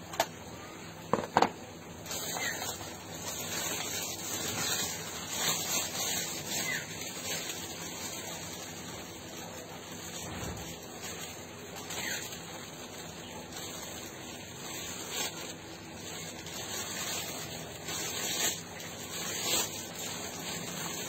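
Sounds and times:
cloth plastic and paper rustling: 1.2 - 21.0.

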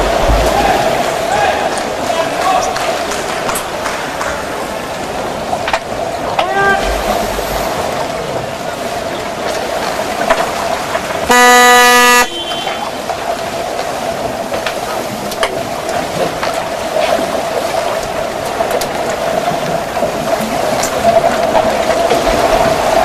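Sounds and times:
referee signal horn blast: 11.3 - 12.9.

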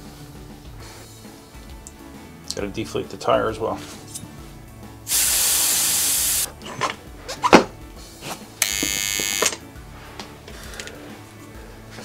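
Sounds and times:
air hissing out of tire valve: 5.1 - 6.5.

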